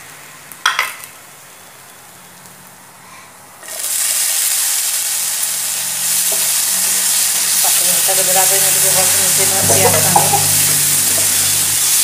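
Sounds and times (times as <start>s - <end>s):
food sizzling in oil: 3.6s - 12.0s.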